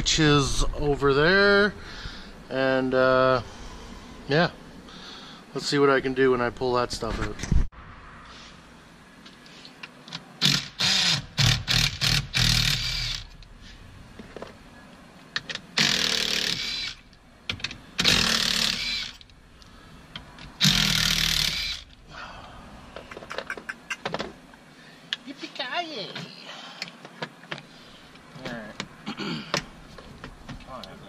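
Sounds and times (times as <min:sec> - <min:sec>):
power ratchet running: 0:10.4 - 0:13.4, 0:15.8 - 0:17.1, 0:18.0 - 0:19.3, 0:20.6 - 0:22.0.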